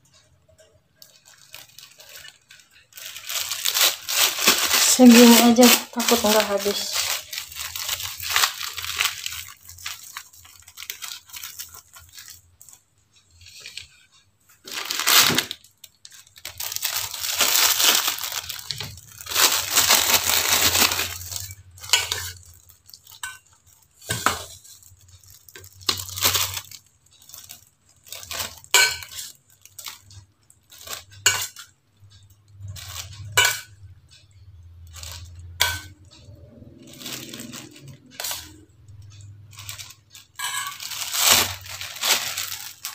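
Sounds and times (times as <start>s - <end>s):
plastic bag rustling: 0.5s - 14.0s, 14.6s - 31.6s, 32.6s - 33.4s, 34.8s - 42.9s
metal spoon clinking on steel bowl: 21.1s - 24.6s, 28.2s - 29.4s, 30.8s - 40.8s.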